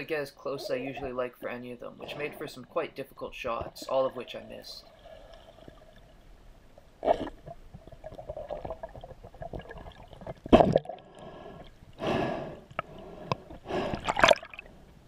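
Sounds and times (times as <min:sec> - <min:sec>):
underwater water gurgling: 0:03.4 - 0:12.0, 0:12.6 - 0:14.8.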